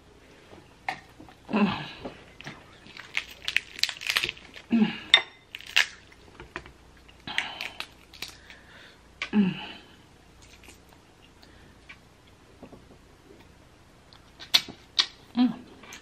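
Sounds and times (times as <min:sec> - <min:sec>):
crab shells cracking: 0:02.8 - 0:04.7, 0:05.5 - 0:08.6.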